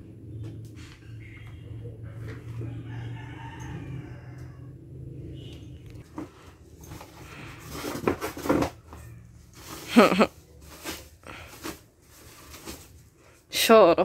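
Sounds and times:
packing material rustling: 6.8s - 13.2s.

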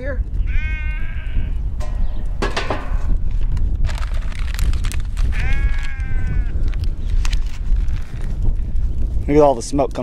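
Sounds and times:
farm animal bleating: 0.0s - 1.7s, 5.2s - 6.7s
wind buffeting microphone: 0.0s - 10.0s
knocks and rustles: 1.8s - 5.3s.

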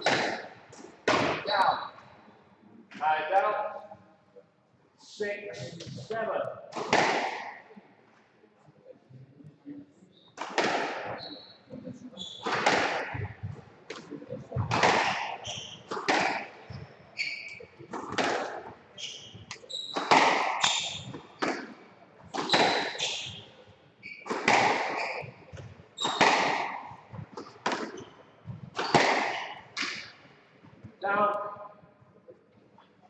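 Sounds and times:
squash ball hitting racquets and walls: 0.0s - 1.9s, 6.7s - 7.6s, 10.4s - 11.3s, 12.2s - 30.2s
shoes squeaking on wooden floor: 11.1s - 31.0s.

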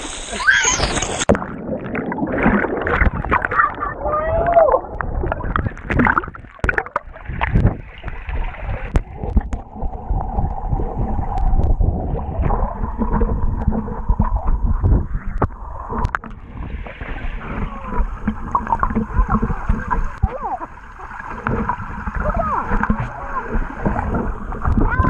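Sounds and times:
muffled underwater water sloshing: 0.9s - 25.0s.

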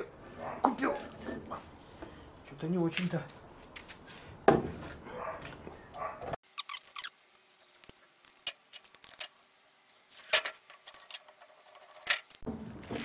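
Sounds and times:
metal bicycle parts clicking: 7.7s - 9.4s, 10.2s - 12.4s.

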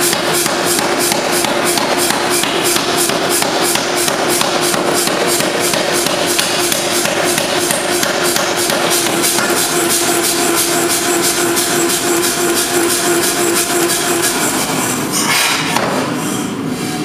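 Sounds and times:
power hammer striking metal: 0.0s - 14.6s.

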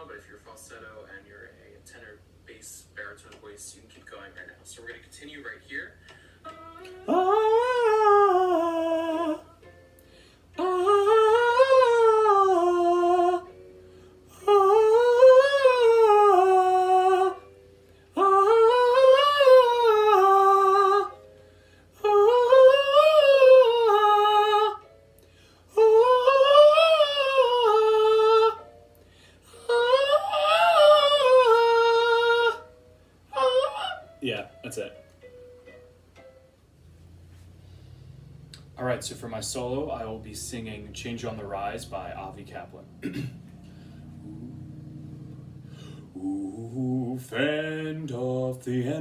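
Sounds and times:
person singing vocal scales: 6.4s - 9.7s, 10.6s - 13.5s, 14.3s - 17.5s, 18.1s - 21.2s, 22.0s - 24.9s, 25.7s - 28.7s, 29.5s - 32.7s, 33.3s - 34.3s, 38.1s - 49.0s.

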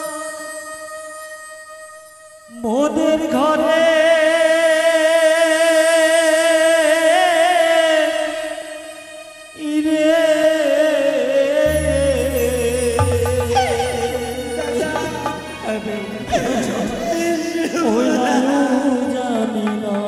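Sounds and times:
man singing long wavering notes: 9.6s - 20.0s
low musical accompaniment: 11.7s - 17.7s.

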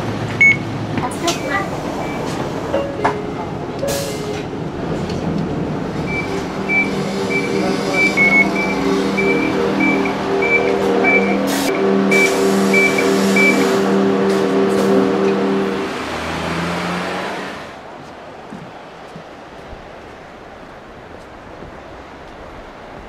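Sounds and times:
high electronic beeps: 6.0s - 13.8s.

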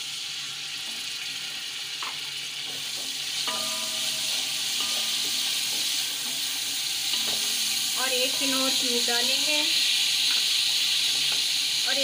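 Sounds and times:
spices sizzling in hot oil: 0.0s - 12.0s
spatula stirring in metal pot: 2.6s - 9.1s.

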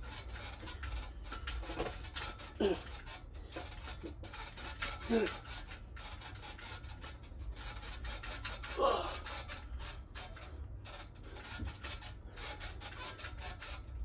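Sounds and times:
man grunting: 2.6s - 2.9s, 5.0s - 5.4s, 8.7s - 9.2s.

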